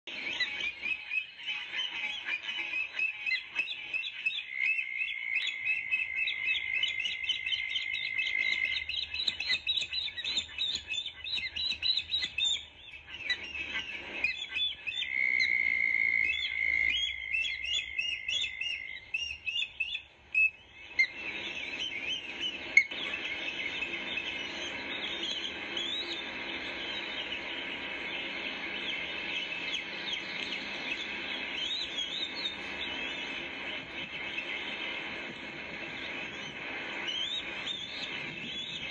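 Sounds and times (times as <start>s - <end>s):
ospreys chirping: 0.1s - 38.9s
steady hiss: 20.1s - 38.9s.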